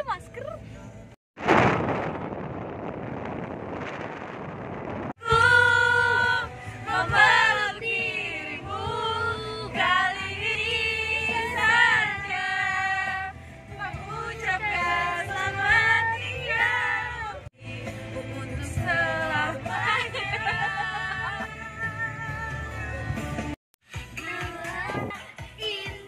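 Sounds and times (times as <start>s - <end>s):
women singing together: 5.2s - 22.8s.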